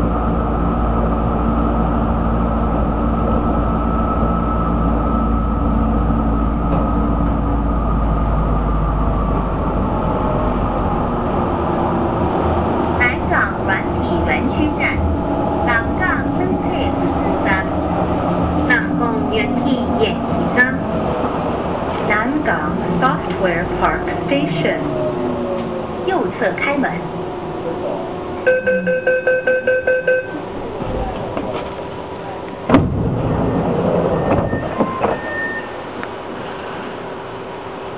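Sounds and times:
metro car low rumble: 0:00.0 - 0:37.9
short tones: 0:28.5 - 0:30.5
train doors sliding open: 0:30.4 - 0:37.6.

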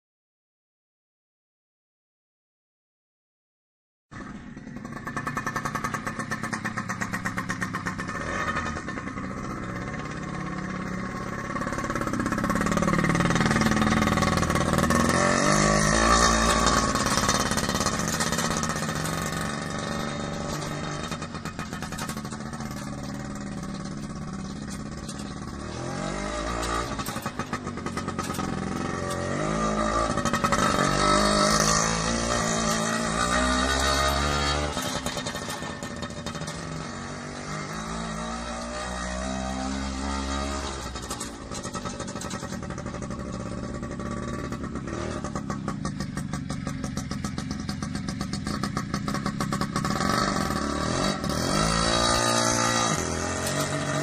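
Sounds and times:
motor scooter engine revving: 0:04.2 - 0:54.0.

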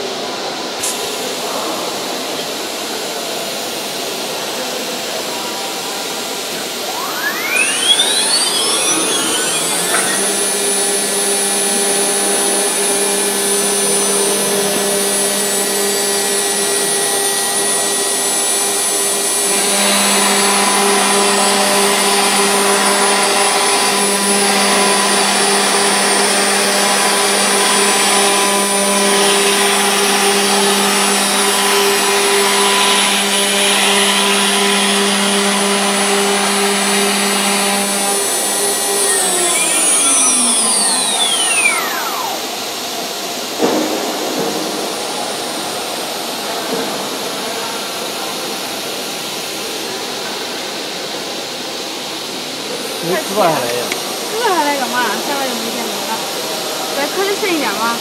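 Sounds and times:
router spindle whine: 0:03.7 - 0:51.0, 0:51.7 - 0:58.0
v-bit cutting wood: 0:06.4 - 0:43.8.

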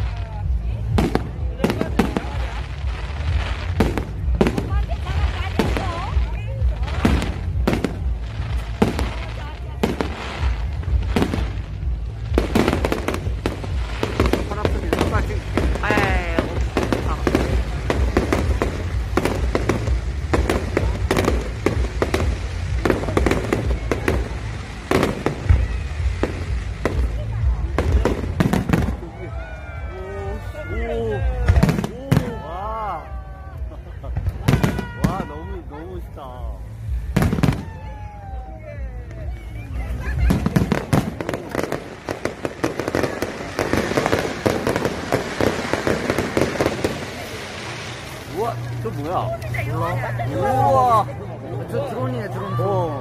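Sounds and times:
fireworks bangs and crackles: 0:00.0 - 0:53.0.

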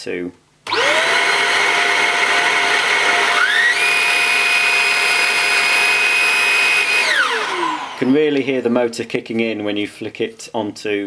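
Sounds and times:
handheld vacuum whine: 0:00.7 - 0:08.1.

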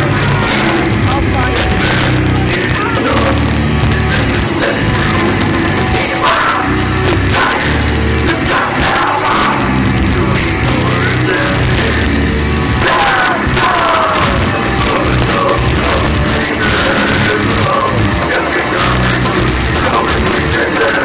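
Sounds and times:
death metal band playing live: 0:00.0 - 0:21.0
steady drum beat: 0:00.0 - 0:21.0.

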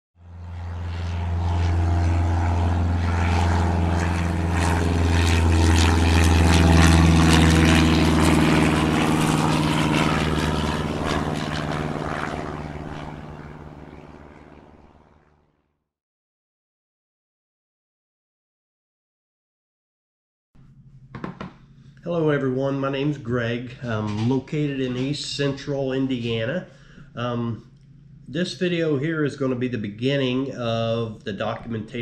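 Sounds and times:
propeller airplane flying past: 0:00.2 - 0:15.8.

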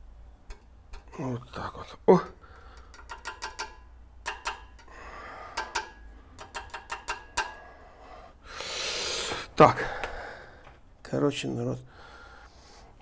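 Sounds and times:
metal parts clicking and clinking: 0:02.8 - 0:07.6.

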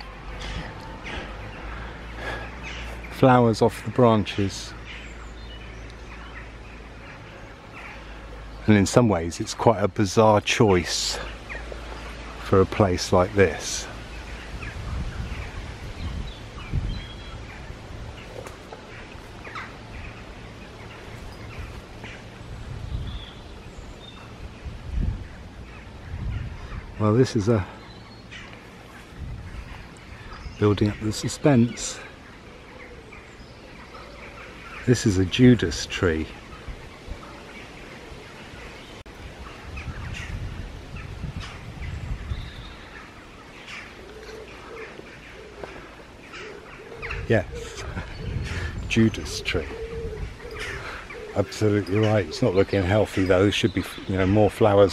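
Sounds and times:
birds chirping: 0:00.0 - 0:54.9
low outdoor rumble: 0:00.0 - 0:54.9
low rumble on microphone: 0:11.1 - 0:31.0, 0:47.0 - 0:51.1.

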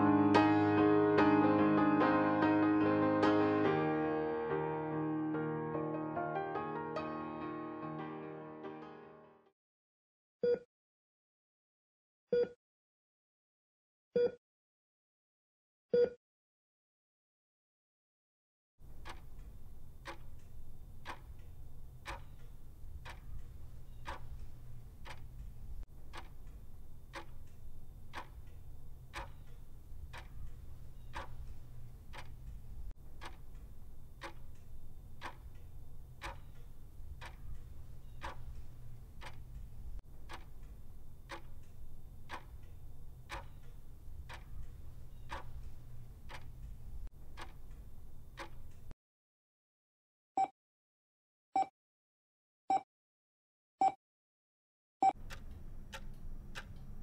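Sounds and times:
clock ticking: 0:18.8 - 0:48.9, 0:55.1 - 0:57.0.

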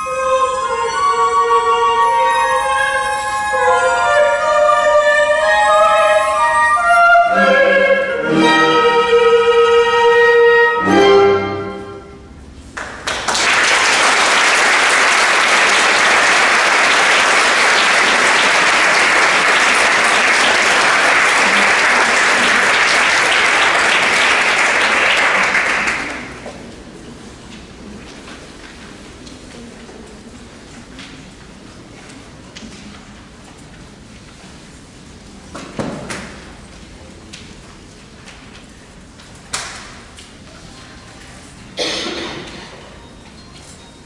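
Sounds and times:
chamber orchestra with voices: 0:00.0 - 0:12.4
audience applauding: 0:12.7 - 0:26.4.

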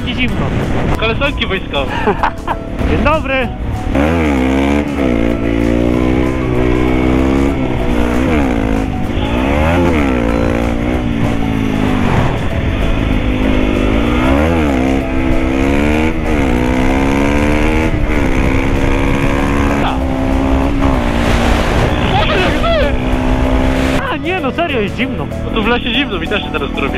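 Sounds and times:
motorcycle engine accelerating: 0:00.0 - 0:26.9
wind rushing over microphone: 0:17.7 - 0:24.0.

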